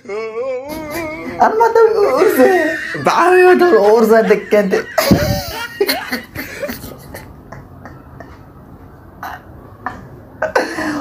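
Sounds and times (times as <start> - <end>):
man's stifled laughter: 2.0 - 8.5.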